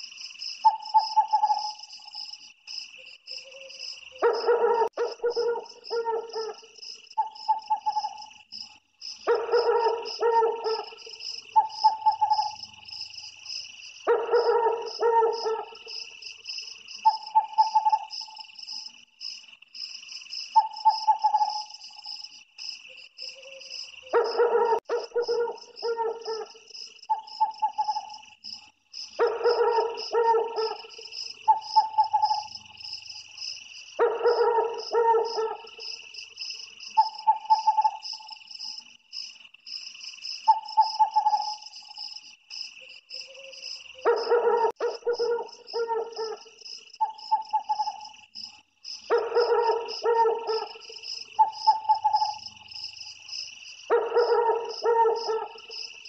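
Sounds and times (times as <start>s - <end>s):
insects chirring: 0.0s - 56.0s
owl calling: 0.6s - 1.8s, 4.3s - 8.2s, 9.3s - 12.6s, 17.0s - 18.4s, 20.6s - 21.7s, 24.2s - 28.2s, 29.2s - 32.5s, 34.0s - 35.8s, 36.9s - 38.4s, 40.5s - 41.7s, 44.1s - 48.1s, 49.1s - 52.4s.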